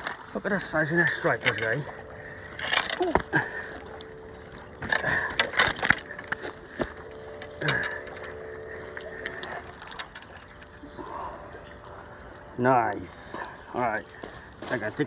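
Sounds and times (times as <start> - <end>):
rustling handling noise: 0.0 - 12.0.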